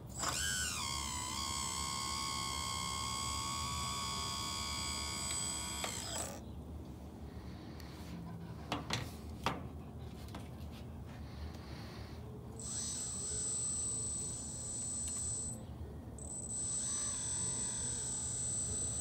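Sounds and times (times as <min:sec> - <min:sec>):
small electric motors whining: 0:00.0 - 0:06.4, 0:12.6 - 0:15.6, 0:16.2 - 0:19.0.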